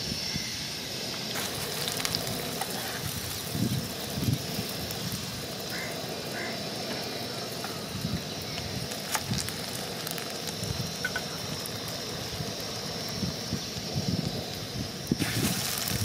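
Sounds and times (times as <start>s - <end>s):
hot oil sizzling: 0.0s - 16.0s
sharp ticks: 7.6s - 15.1s.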